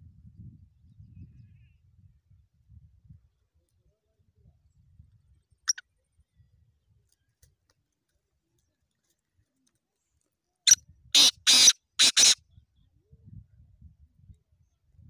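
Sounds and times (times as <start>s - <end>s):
bird harsh call: 11.2s - 12.4s.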